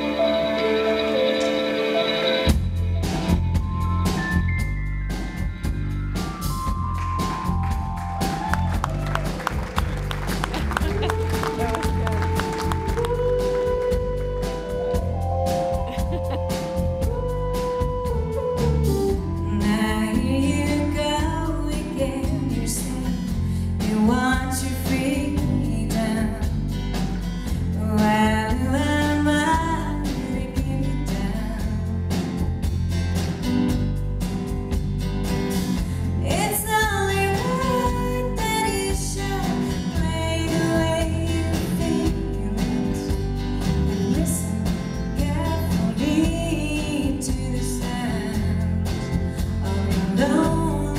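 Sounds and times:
live band playing: 0.0s - 50.9s
woman singing: 19.4s - 26.6s, 27.7s - 32.1s, 36.2s - 50.9s.

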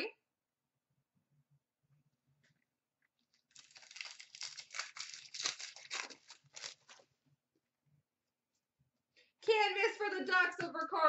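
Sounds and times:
card pack wrapper tearing: 3.4s - 7.0s.

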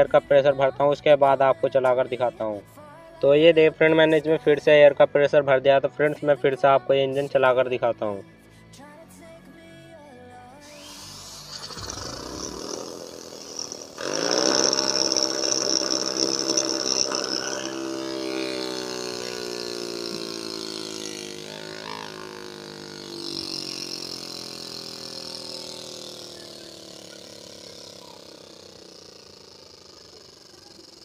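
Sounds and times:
compressed air hissing: 10.6s - 24.4s
miniature engine whirring: 10.6s - 31.0s.

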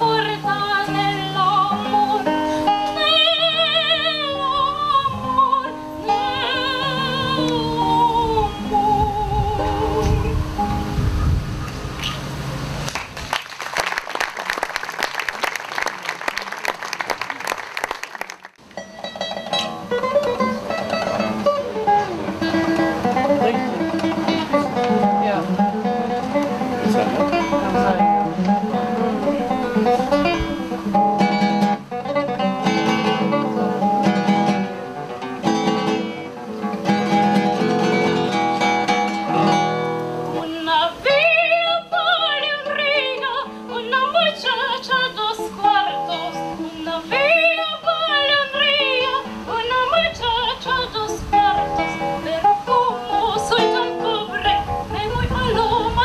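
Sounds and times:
woman singing with vibrato: 0.0s - 10.7s, 40.3s - 56.0s
fingerstyle classical guitar: 0.0s - 12.2s, 18.6s - 56.0s.

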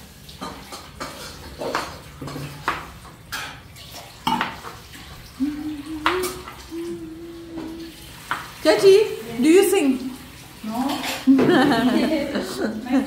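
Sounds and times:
pots and pans clattering: 0.3s - 4.8s, 10.7s - 12.6s.

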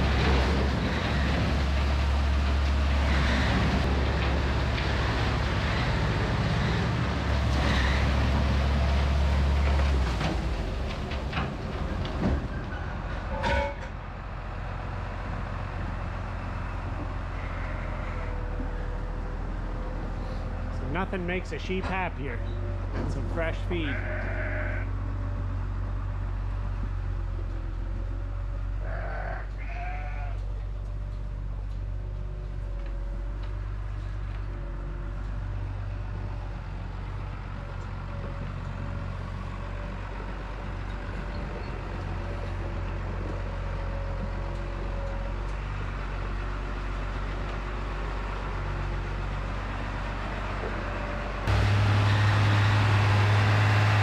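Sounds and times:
tractor engine running: 0.0s - 28.8s, 30.4s - 54.0s
sheep bleating: 17.3s - 18.4s, 23.7s - 25.0s, 28.8s - 30.5s.

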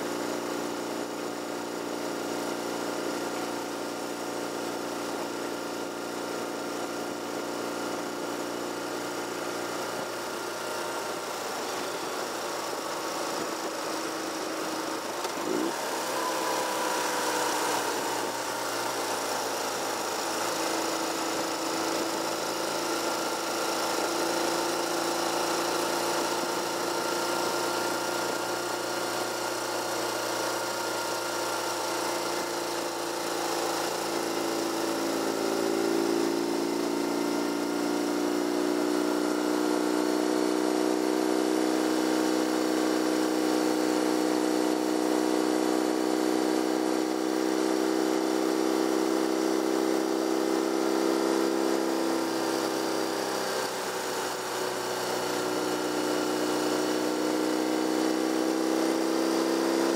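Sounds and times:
car engine running: 0.0s - 59.9s
road noise: 10.1s - 20.4s.

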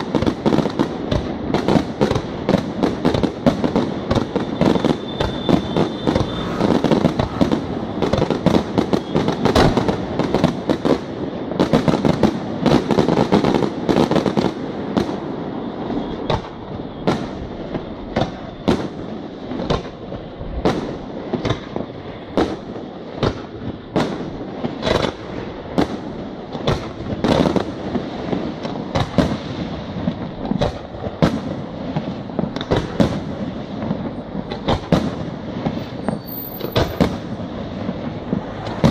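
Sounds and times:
firework rumble and crackle: 0.0s - 38.9s
firework shells bursting: 4.1s - 10.0s, 34.0s - 37.4s.

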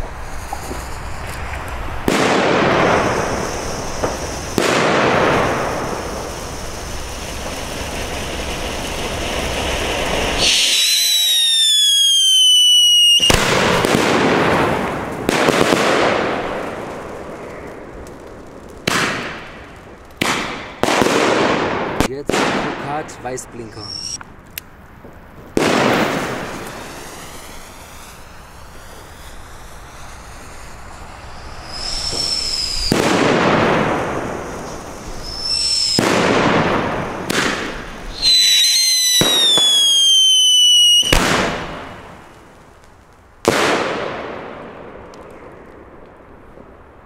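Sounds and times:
falling firework whistle: 0.0s - 16.8s, 23.7s - 24.2s, 25.6s - 42.5s
sharp firework shots: 0.0s - 24.3s, 25.0s - 47.0s
firework fountain hissing: 0.0s - 24.4s, 25.0s - 46.5s.

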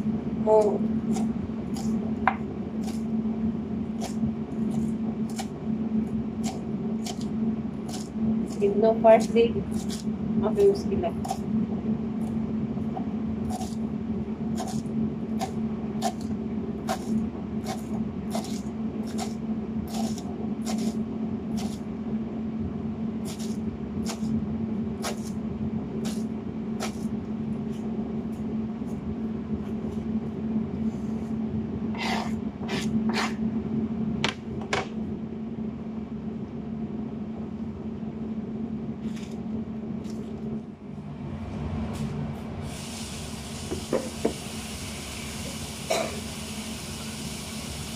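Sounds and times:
steady low hum: 0.0s - 47.9s
knife chopping on cutting board: 6.4s - 7.3s, 14.6s - 21.0s, 21.6s - 21.8s, 23.2s - 24.3s, 25.0s - 25.4s, 26.8s - 27.1s.

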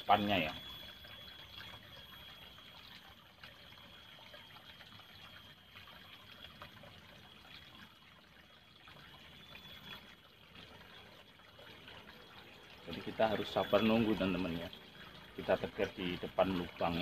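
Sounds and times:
thin high-pitched tone: 0.0s - 6.6s, 12.3s - 17.0s
water trickling: 0.0s - 17.0s.

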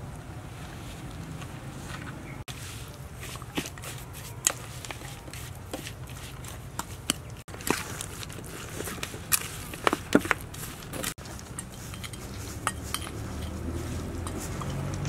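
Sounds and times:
spoon stirring paste in metal bowl: 3.1s - 15.0s.

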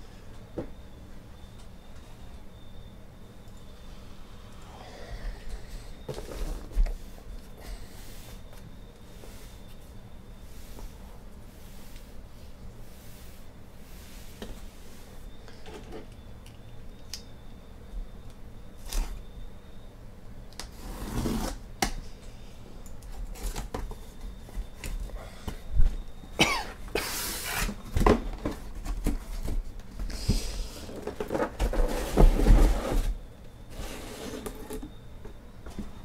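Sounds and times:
cardboard and plastic wrap rustling: 6.0s - 8.6s, 27.3s - 34.9s.

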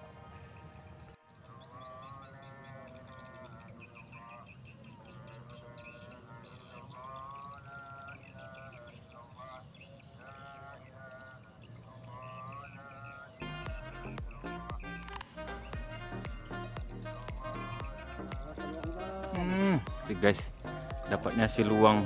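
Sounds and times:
music with wavering melody: 0.0s - 6.6s, 13.4s - 22.0s.

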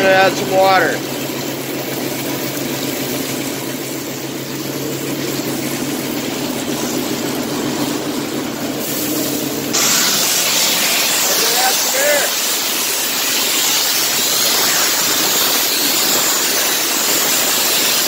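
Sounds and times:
air compressor running: 0.0s - 18.0s
water spraying hiss: 8.8s - 18.0s.

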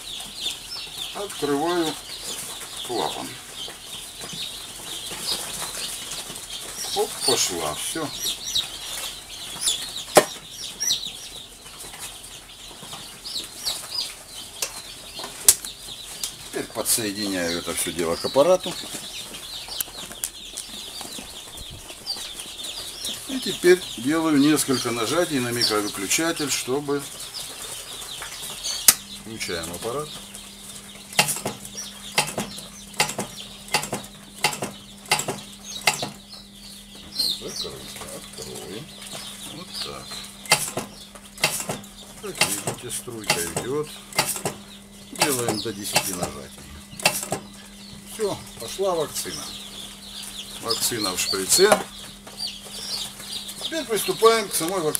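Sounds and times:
chicks peeping: 0.0s - 54.9s
injector machine humming: 28.2s - 54.9s
double mechanical clicks: 31.1s - 36.2s, 40.4s - 41.8s, 42.4s - 44.6s, 45.2s - 46.3s, 47.0s - 47.5s
sharp knocks: 31.1s - 36.2s, 40.4s - 44.6s, 45.2s - 47.5s.

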